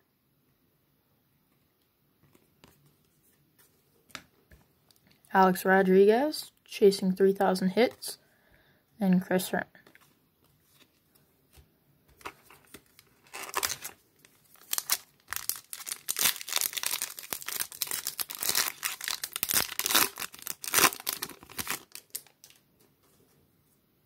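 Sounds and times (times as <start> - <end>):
foil wrapper crinkling: 12.4 - 22.6.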